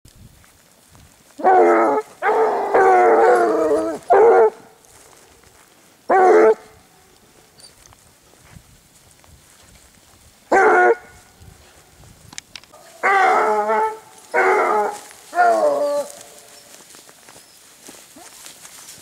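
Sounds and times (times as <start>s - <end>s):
hounds baying: 1.4s - 5.3s, 6.1s - 6.9s, 10.5s - 11.2s, 12.7s - 19.0s.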